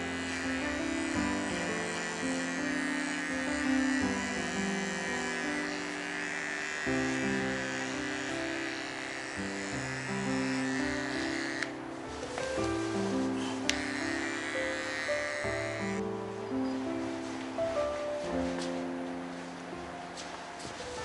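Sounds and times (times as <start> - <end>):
pet clipper buzzing: 0.0 - 16.1
background music with held notes: 0.0 - 21.0.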